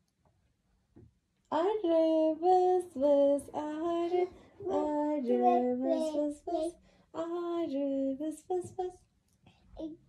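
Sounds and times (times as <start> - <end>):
child singing: 1.6 - 8.9.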